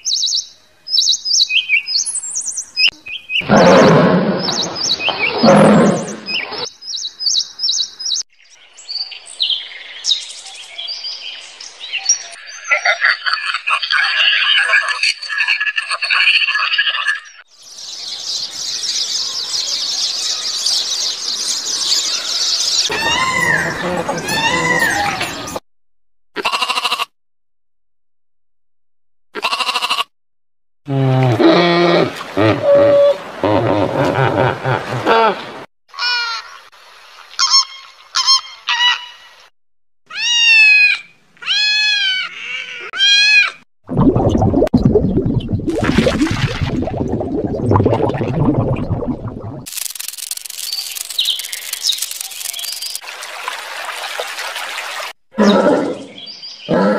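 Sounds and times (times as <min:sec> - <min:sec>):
animal call: 0:22.9 - 0:25.6
rough underwater rushing noise: 0:43.8 - 0:55.2
high-pitched insect buzzing: 0:49.7 - 0:53.0.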